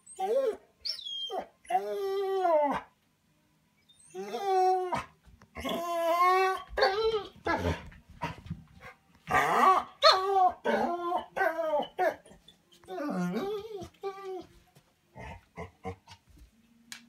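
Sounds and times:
dog whining moans: 0:03.9 - 0:07.9, 0:09.3 - 0:14.5.

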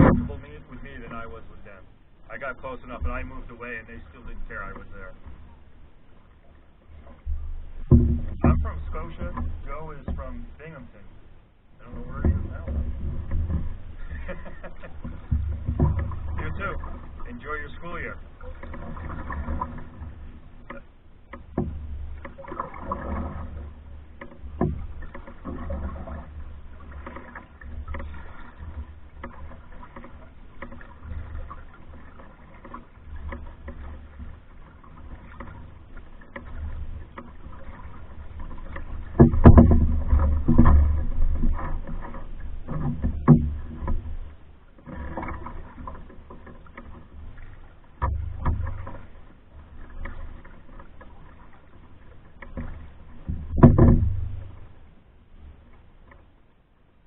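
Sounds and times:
knocks on canoe hull: 0:00.0 - 0:00.5, 0:07.1 - 0:10.4, 0:11.9 - 0:17.4, 0:18.0 - 0:44.2, 0:44.8 - 0:54.8
low steady rumble: 0:00.0 - 0:57.0
paddle splashing in water: 0:00.0 - 0:57.0.

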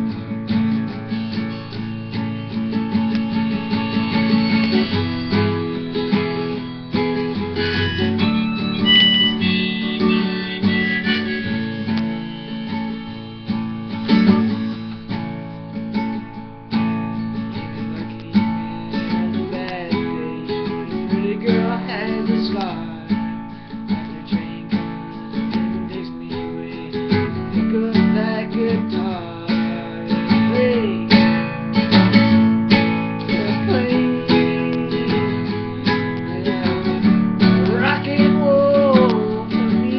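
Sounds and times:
acoustic guitar strumming and picking: 0:00.0 - 0:39.9.

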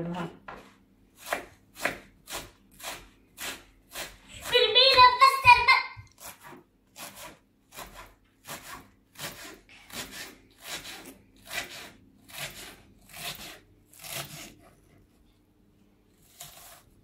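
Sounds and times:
knife chopping onion on board: 0:01.2 - 0:14.7.

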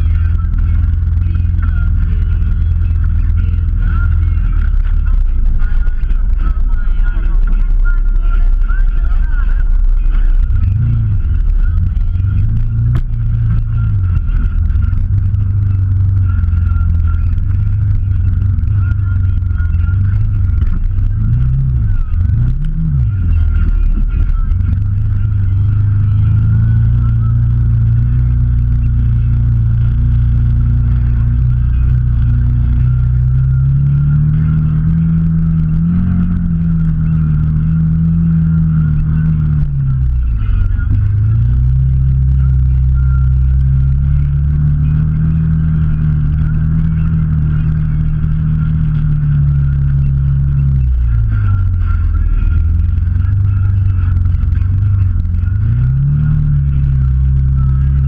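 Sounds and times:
off-road vehicle engine: 0:00.0 - 0:58.0.

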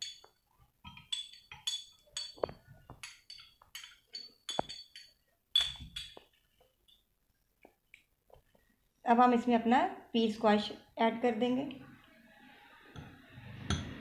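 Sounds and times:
metal spoon clinking on glass: 0:00.0 - 0:06.2, 0:13.6 - 0:14.0.

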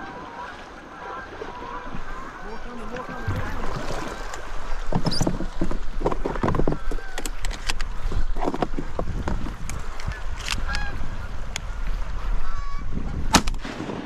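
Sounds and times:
geese honking: 0:00.0 - 0:04.9, 0:10.1 - 0:13.3
river water washing: 0:00.0 - 0:14.0
wind: 0:00.0 - 0:14.0.

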